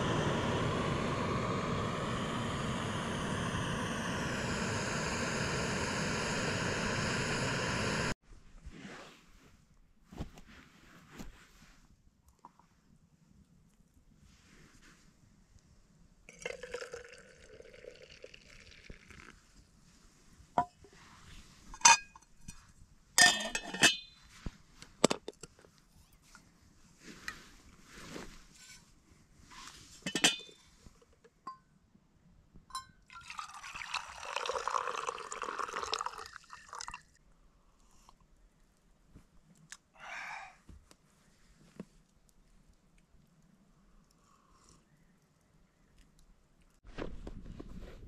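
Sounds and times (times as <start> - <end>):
tea pouring into a mug: 16.3 - 19.4, 33.1 - 37.2
cookware and teapot clinking: 23.2 - 24.1, 30.1 - 30.6.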